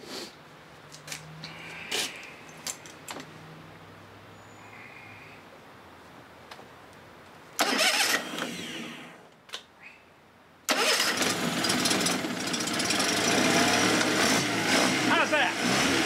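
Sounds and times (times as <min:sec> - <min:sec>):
outboard motor running: 0:11.2 - 0:16.0.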